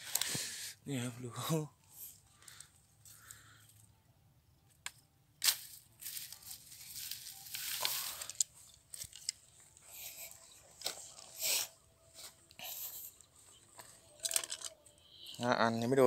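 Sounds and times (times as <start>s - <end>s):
dry straw rustling and crunching: 5.4s - 12.4s.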